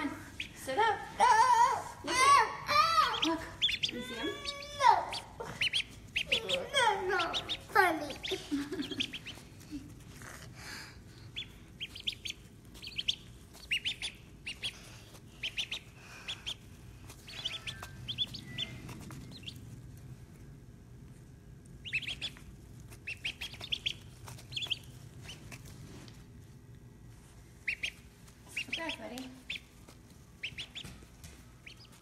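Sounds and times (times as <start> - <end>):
ducklings peeping: 0.0 - 20.6, 21.5 - 25.9, 27.3 - 32.0.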